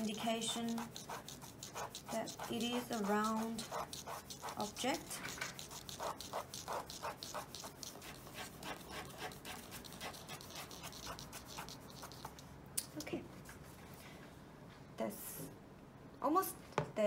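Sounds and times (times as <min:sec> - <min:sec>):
pen scratching on paper: 0:00.0 - 0:12.4.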